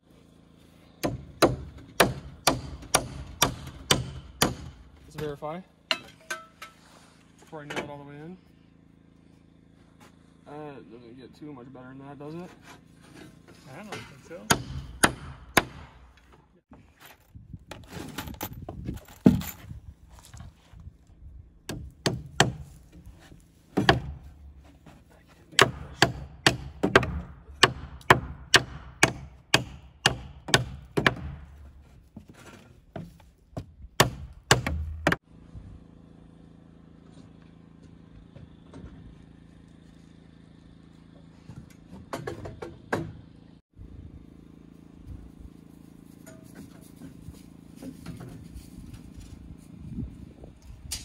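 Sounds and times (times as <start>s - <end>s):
hammer striking nails into wood: 1.0s - 4.8s, 14.4s - 16.2s, 21.7s - 22.8s, 23.8s - 24.3s, 25.6s - 31.5s, 33.6s - 35.2s.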